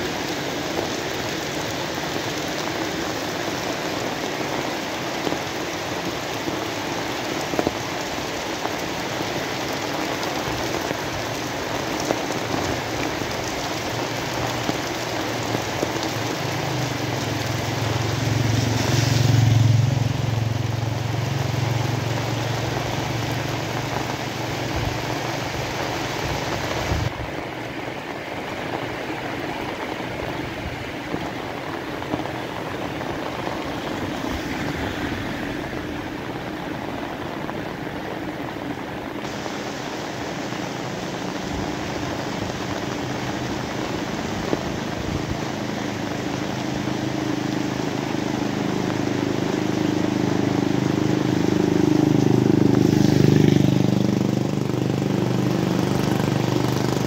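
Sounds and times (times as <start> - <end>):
steady rain falling: 0.0 - 57.0
passing vehicle engine hum: 13.4 - 26.9, 29.4 - 38.4, 40.6 - 57.0.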